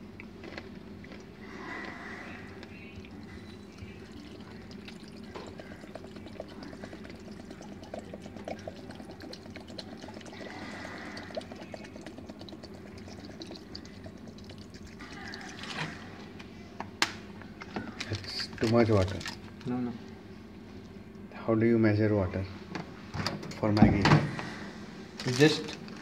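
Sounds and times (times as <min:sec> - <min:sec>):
water trickling into a bowl: 0:02.5 - 0:16.1.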